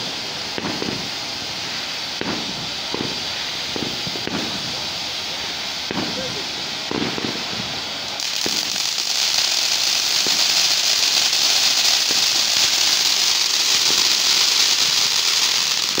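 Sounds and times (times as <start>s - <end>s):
faint firework pops: 0.0s - 4.8s, 5.9s - 7.6s, 8.2s - 10.6s, 14.8s - 16.0s
firework fountain hissing: 0.0s - 16.0s.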